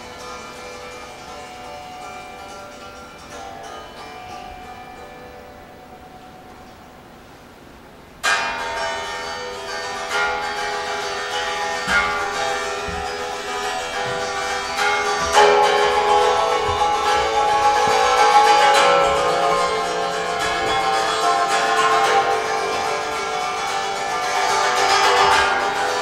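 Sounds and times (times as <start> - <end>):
guitar strings struck with sticks: 8.2 - 26.0.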